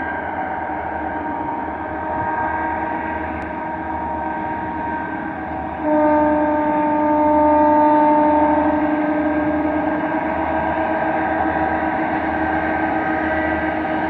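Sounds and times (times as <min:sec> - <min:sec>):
locomotive air horn: 0:05.8 - 0:10.8.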